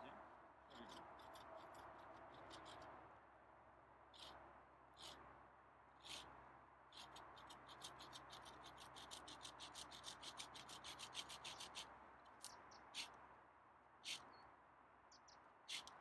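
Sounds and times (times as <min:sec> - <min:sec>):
saw blade rasping through branch: 0:00.7 - 0:02.9, 0:04.1 - 0:04.4, 0:05.0 - 0:05.3, 0:06.0 - 0:13.2, 0:15.7 - 0:16.0.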